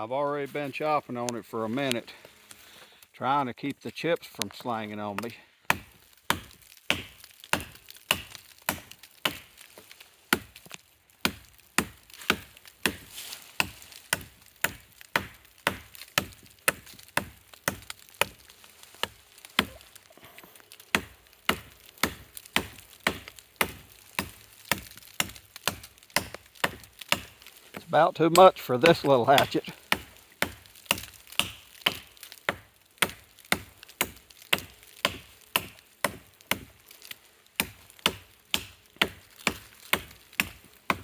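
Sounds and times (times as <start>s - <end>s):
hatchet chopping wood: 5.1s - 19.8s, 20.8s - 41.0s.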